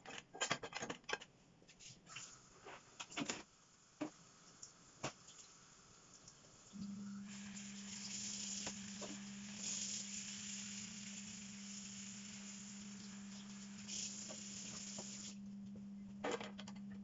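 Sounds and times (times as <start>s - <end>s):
running tap water splashing: 3.8s - 15.4s
pipes humming: 6.7s - 16.2s.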